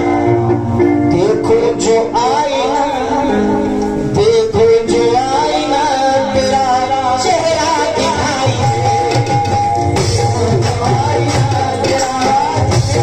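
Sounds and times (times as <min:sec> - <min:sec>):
harmonium chords: 0:00.0 - 0:13.0
man singing ornamented line: 0:00.0 - 0:13.0
hand drums: 0:07.2 - 0:13.0.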